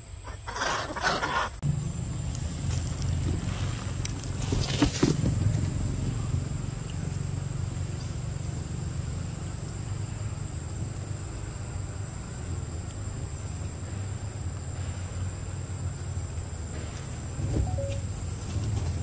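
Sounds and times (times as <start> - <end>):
low motor rumble: 1.6 - 14.4
rustling and knocks: 2.7 - 5.6
high-pitched tone: 17.6 - 18.2.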